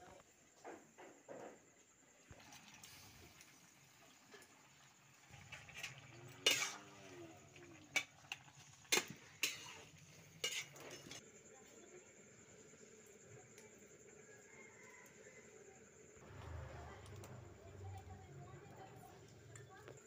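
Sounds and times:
metal spatula stirring curry: 5.8s - 7.1s, 7.9s - 11.2s.

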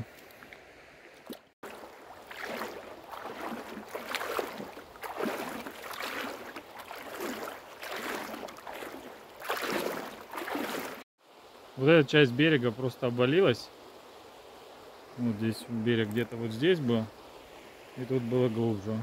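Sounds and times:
footsteps on gravel: 1.6s - 11.0s
river rushing: 1.6s - 11.9s.

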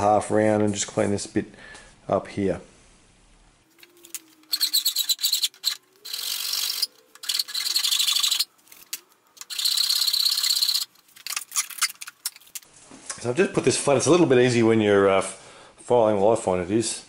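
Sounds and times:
file rasping on metal: 4.5s - 8.4s.

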